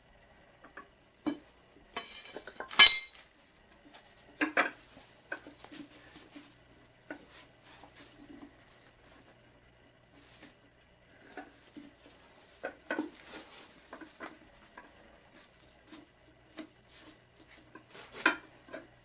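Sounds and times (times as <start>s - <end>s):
steel bar clanging on concrete: 2.0s - 3.4s
steel tools clinking and clanking: 2.0s - 3.4s.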